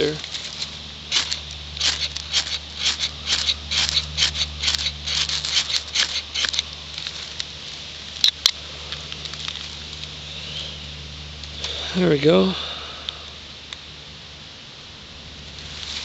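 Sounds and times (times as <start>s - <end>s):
ferro rod scraping: 0.0s - 7.4s
sharp clicks: 0.3s - 7.5s.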